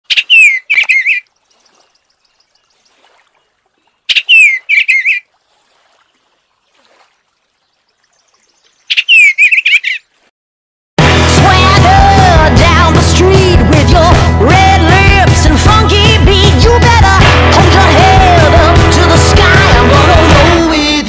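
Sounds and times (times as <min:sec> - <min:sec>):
bird song warbled phrases: 0:00.1 - 0:10.2.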